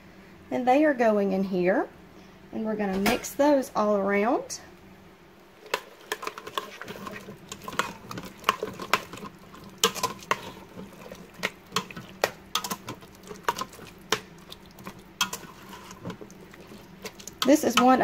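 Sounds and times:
soft wet churning: 5.5 - 18.0
spoon clinking and scraping pot: 5.7 - 18.0.

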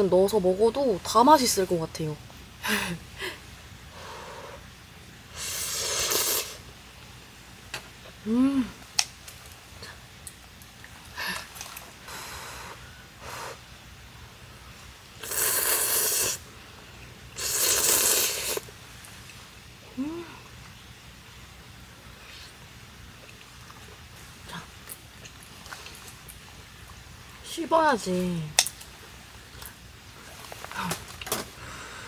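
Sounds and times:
noodles being slurped: 5.4 - 6.6, 15.2 - 16.4, 17.4 - 18.7
person humming: 8.2 - 8.8, 19.9 - 20.5.

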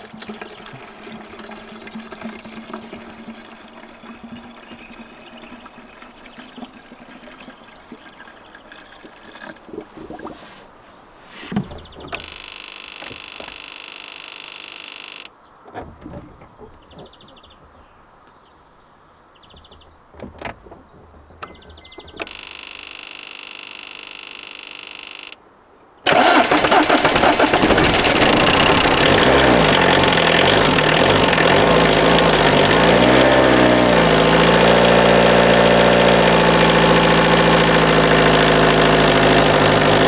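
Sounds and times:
liquid pouring and gurgling: 0.0 - 10.4.

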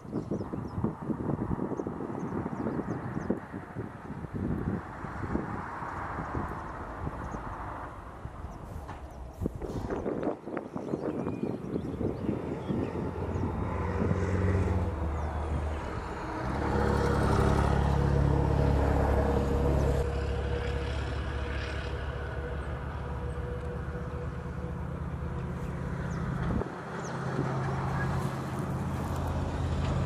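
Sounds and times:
vehicle engine running: 12.6 - 30.0.

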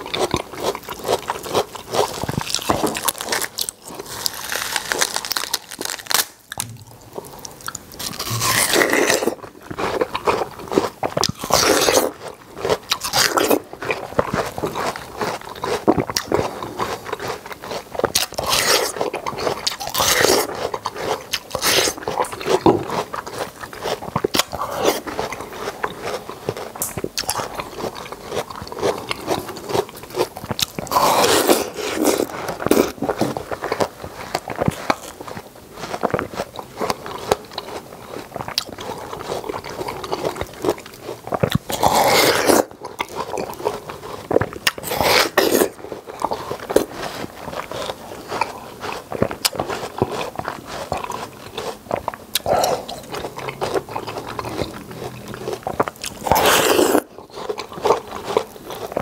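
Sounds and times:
wet chewing: 0.0 - 59.0
crisp bites: 1.1 - 9.5.

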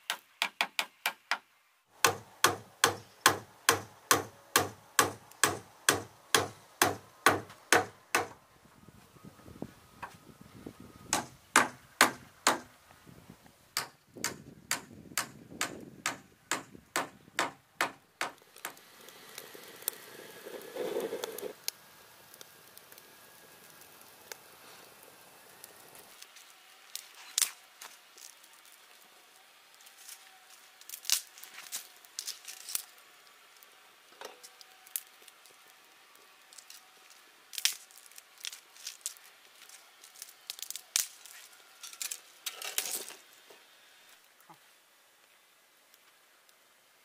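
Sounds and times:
hammer driving nails into wood: 2.0 - 8.4, 11.1 - 12.7, 13.8 - 18.8.

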